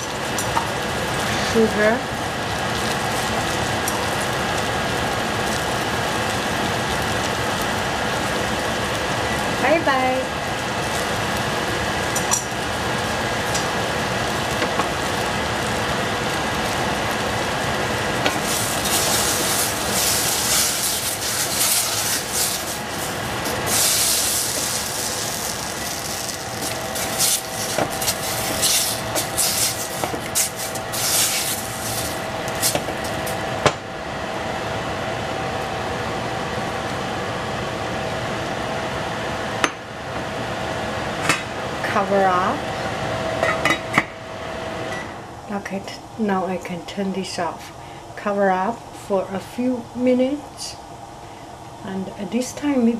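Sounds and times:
food sizzling in a pan: 0.0 - 33.5
fan noise: 0.0 - 52.9.

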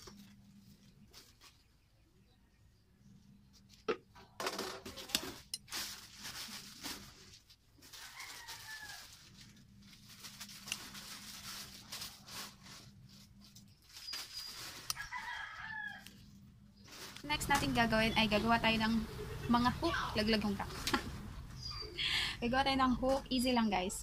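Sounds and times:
plastic bags rustling: 0.0 - 1.9, 4.4 - 21.6.

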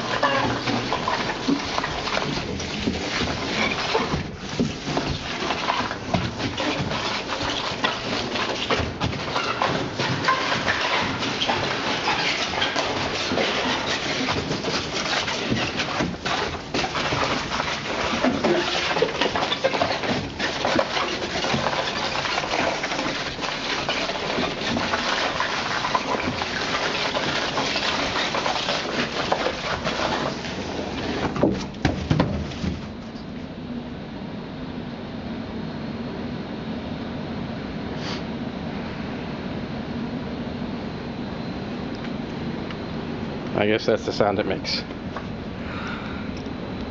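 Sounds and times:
box scraping on concrete floor: 0.0 - 33.1.

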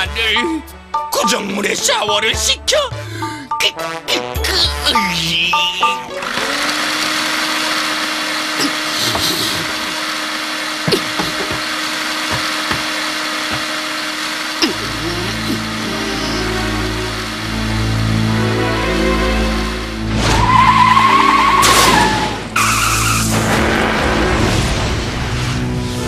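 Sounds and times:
music: 0.0 - 6.8, 14.6 - 26.0
vacuum cleaner running: 6.1 - 20.1.

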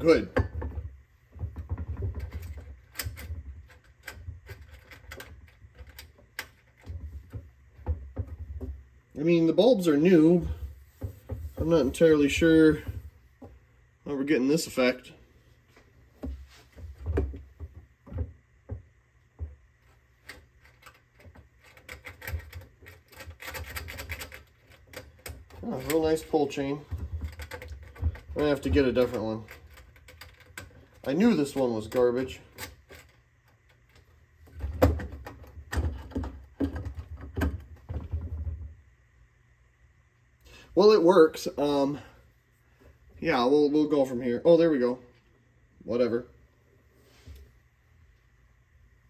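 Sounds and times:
fluorescent light hum: 0.0 - 49.0.

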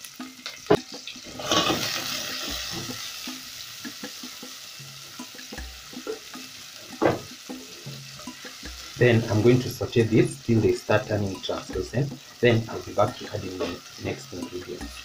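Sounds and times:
onions sizzling in hot oil: 0.0 - 15.0
spatula stirring in pan: 0.1 - 9.0
spatula knocking against pan: 0.6 - 9.0.

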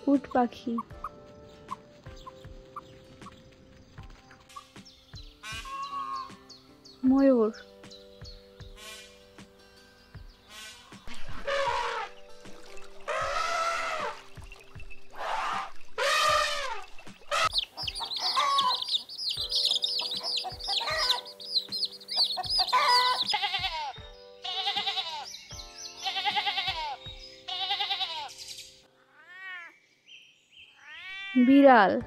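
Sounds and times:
background music: 0.0 - 29.4, 31.1 - 32.0
young goat bleating: 16.0 - 19.0, 20.3 - 21.4, 22.4 - 25.3, 26.0 - 28.3
high warbling chirps: 16.6 - 23.4
cat meowing faintly: 29.1 - 29.7.

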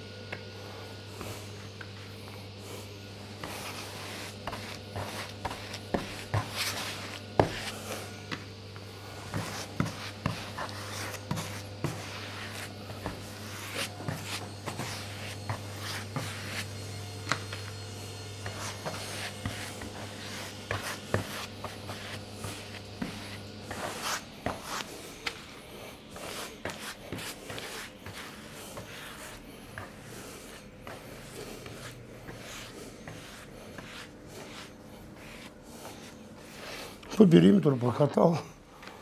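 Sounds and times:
low steady hum: 0.0 - 39.0
glue brush scrubbing wood: 9.0 - 17.5, 18.4 - 24.9, 26.1 - 37.2.

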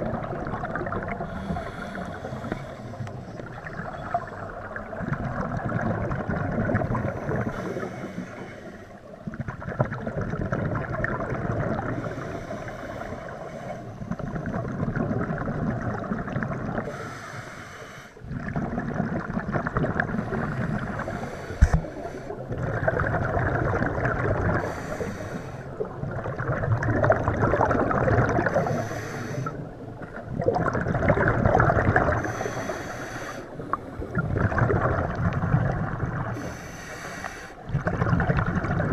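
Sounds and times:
exhaled bubbles rushing: 0.0 - 7.9, 9.1 - 12.2, 14.0 - 16.9, 18.2 - 25.0, 25.7 - 32.6, 33.5 - 36.5, 37.6 - 38.9.

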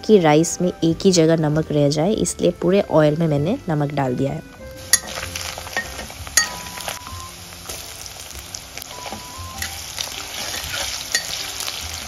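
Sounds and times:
chicken and onion sizzling in oil: 4.7 - 12.0
metal spatula stirring: 4.8 - 12.0.

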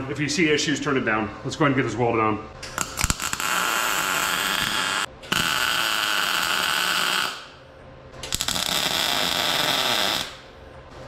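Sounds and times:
welder arc buzzing: 2.6 - 7.6, 8.2 - 10.5.

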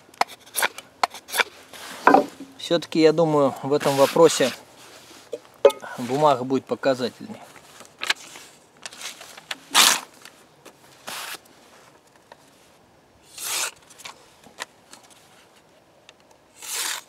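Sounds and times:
paper tearing: 9.7 - 10.1, 13.3 - 13.8, 16.6 - 17.0
blade slicing through paper: 13.3 - 13.8, 16.6 - 17.0.

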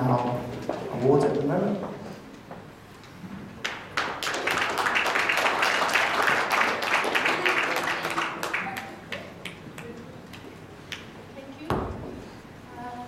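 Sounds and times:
audience applauding: 3.6 - 11.0.

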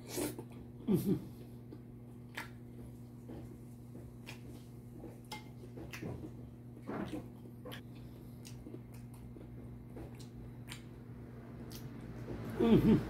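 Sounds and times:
chewing with wet mouth clicks: 1.7 - 2.6, 7.1 - 11.0, 11.6 - 12.2.

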